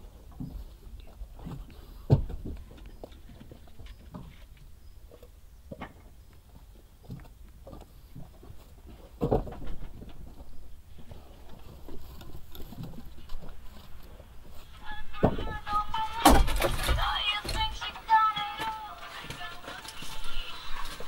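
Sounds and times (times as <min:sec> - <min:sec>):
wooden logs knocking on pile: 0:09.2 - 0:10.3, 0:15.2 - 0:15.6, 0:16.2 - 0:17.9.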